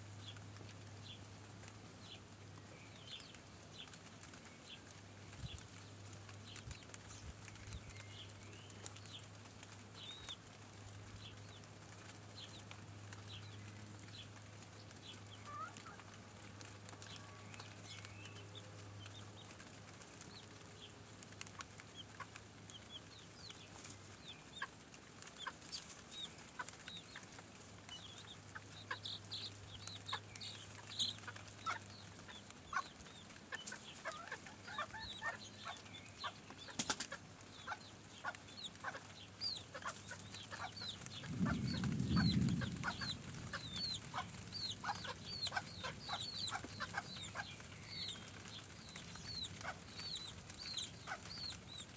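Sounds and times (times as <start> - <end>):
chicks chirping: 2.9 - 5.8, 6.4 - 9.3, 9.9 - 10.4, 11.1 - 51.9
hens clucking: 15.4 - 16.2, 24.3 - 51.9.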